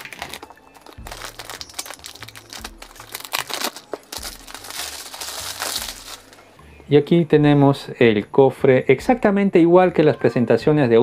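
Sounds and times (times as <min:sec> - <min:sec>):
plastic shrink-wrap crinkling: 0:00.0 - 0:06.5.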